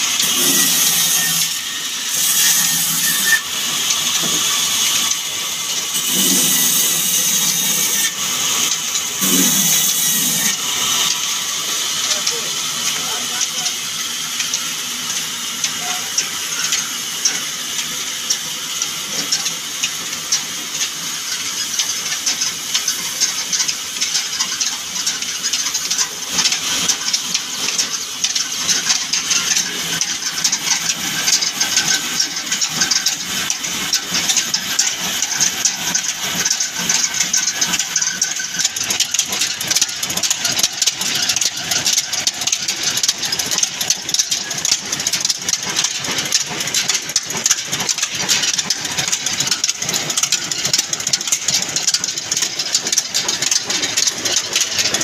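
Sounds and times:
band saw cutting log: 0:00.0 - 0:55.0
diesel engine running: 0:23.8 - 0:55.0.

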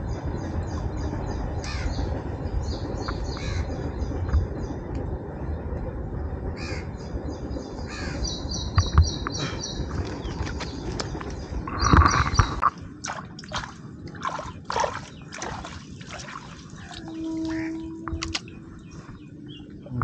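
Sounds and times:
low rumble: 0:00.0 - 0:20.0
birds chirping: 0:06.6 - 0:20.0.

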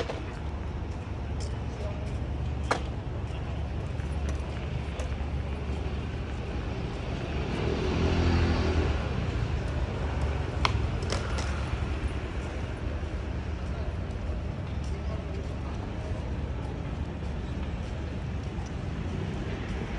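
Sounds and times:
city road traffic hum: 0:00.0 - 0:19.9
vehicle passing: 0:07.0 - 0:11.0.

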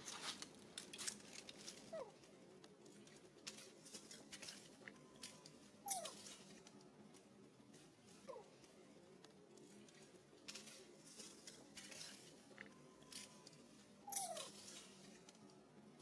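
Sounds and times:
dry leaves rustling: 0:00.0 - 0:02.3, 0:02.9 - 0:06.7, 0:10.4 - 0:13.4, 0:14.1 - 0:15.3
baby monkey squealing: 0:05.8 - 0:06.2, 0:14.0 - 0:14.6.

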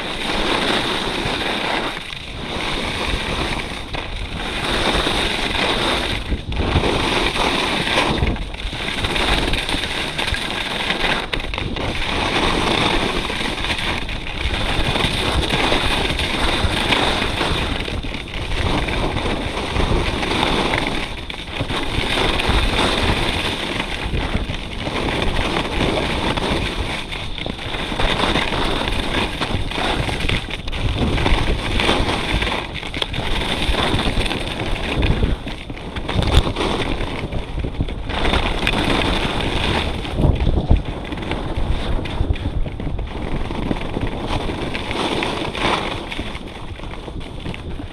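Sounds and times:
skis scraping over snow: 0:00.0 - 0:47.9
wind rushing over microphone: 0:00.0 - 0:47.9.

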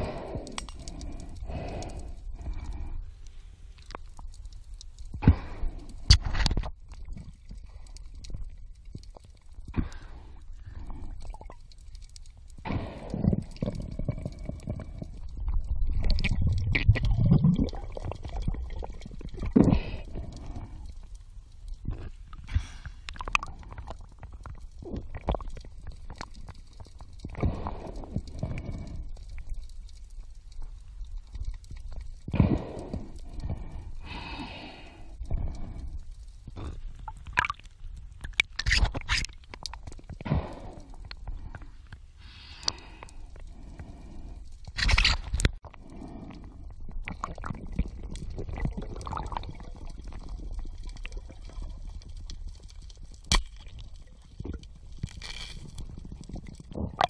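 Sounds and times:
underwater clicks: 0:00.0 - 0:03.0, 0:03.7 - 0:10.0, 0:37.0 - 0:43.2
small underwater clicks: 0:00.0 - 0:57.0
underwater rumbling and gurgling: 0:00.0 - 0:57.0
muffled underwater rumbles and scrapes: 0:12.5 - 0:20.9, 0:43.5 - 0:50.9, 0:53.7 - 0:57.0.

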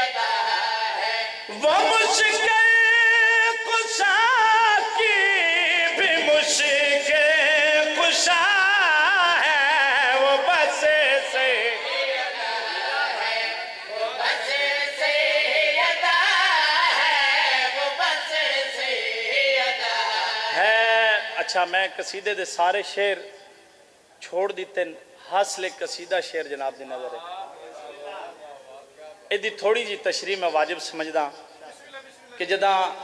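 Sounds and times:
man singing into a microphone: 0:00.9 - 0:11.9.

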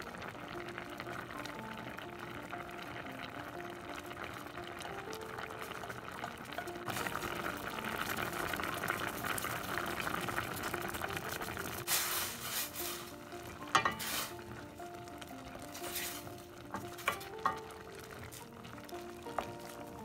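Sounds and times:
vegetables sizzling in a pan: 0:00.0 - 0:20.0
wooden spoon scraping a pan: 0:11.8 - 0:14.7, 0:15.7 - 0:17.4
spoon clattering against pan: 0:13.7 - 0:14.3.

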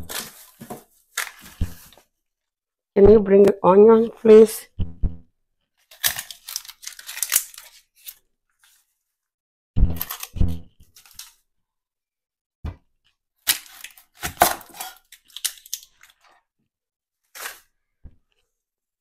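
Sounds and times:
onion skin crackling and tearing: 0:05.8 - 0:08.2, 0:09.9 - 0:11.4, 0:13.4 - 0:16.4.

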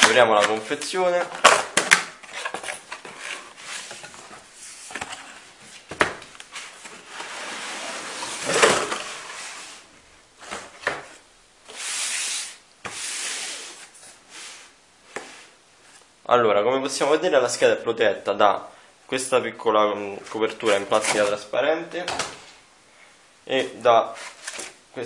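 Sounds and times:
cardboard rubbing and scraping: 0:06.5 - 0:09.8
cardboard sliding on cardboard: 0:06.5 - 0:09.9, 0:11.7 - 0:15.6.

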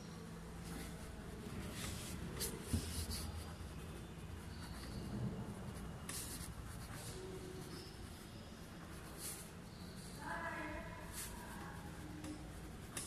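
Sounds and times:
pen scratching on paper: 0:01.7 - 0:10.1, 0:11.0 - 0:13.0.

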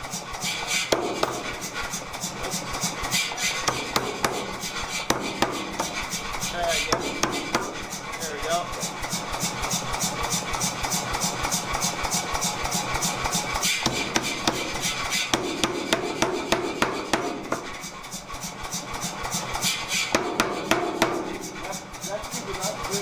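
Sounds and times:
power hammer striking metal: 0:00.7 - 0:01.8, 0:02.4 - 0:08.0, 0:13.3 - 0:18.0, 0:19.6 - 0:21.8.

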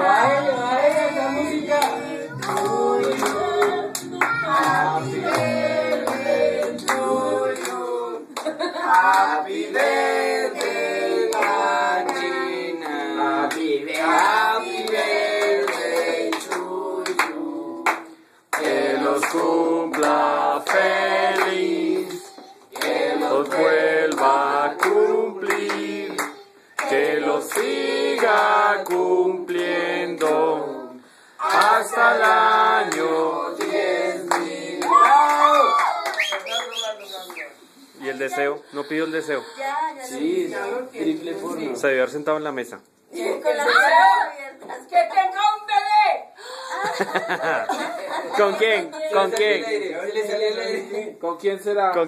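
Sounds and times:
group singing: 0:00.0 - 0:35.8, 0:40.0 - 0:41.8
handclaps keeping time: 0:01.8 - 0:09.3.

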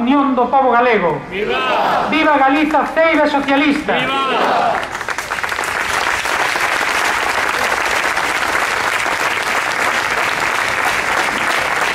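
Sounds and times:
audience applauding: 0:04.1 - 0:11.9.

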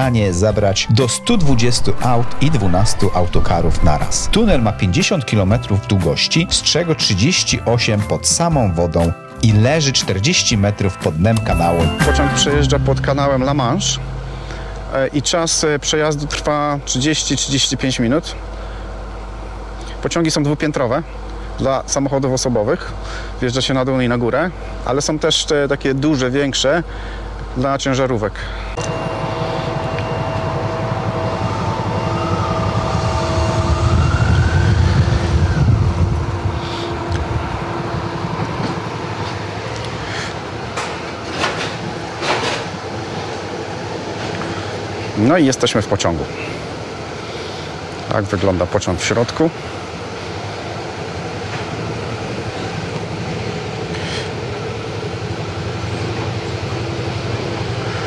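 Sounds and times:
thin wavering tone: 0:11.4 - 0:17.7, 0:28.8 - 0:38.4.

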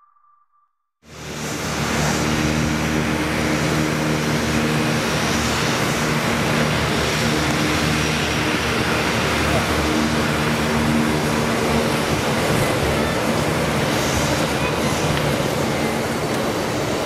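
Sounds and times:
turboprop engines droning: 0:01.0 - 0:17.0.

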